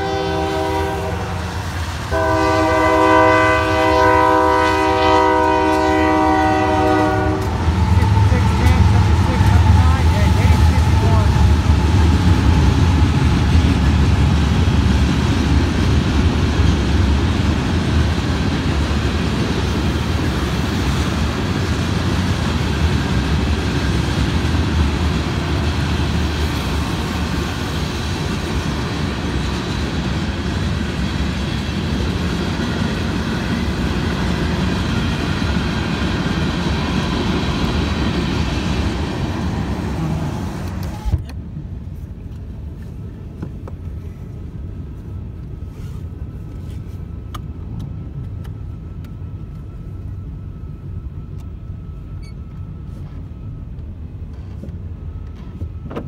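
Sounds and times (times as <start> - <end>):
freight cars rolling on rails: 0.0 - 44.1
diesel locomotive rumble: 0.0 - 56.0.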